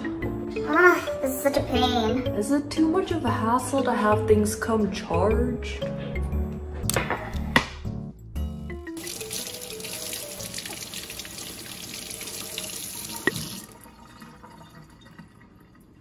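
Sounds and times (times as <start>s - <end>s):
faucet running into metal sink: 9.0s - 16.0s.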